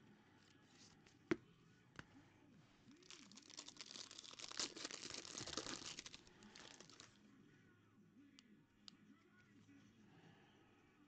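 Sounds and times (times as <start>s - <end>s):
plastic rustling: 3.0s - 7.1s.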